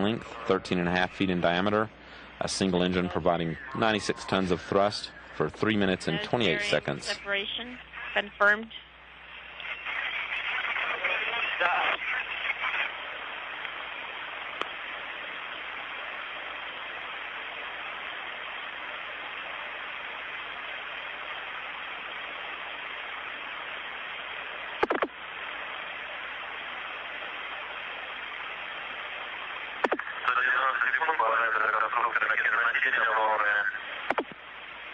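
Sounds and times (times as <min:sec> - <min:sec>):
loud radio crackle: 0:00.0 - 0:34.9
radio static hiss: 0:00.0 - 0:34.9.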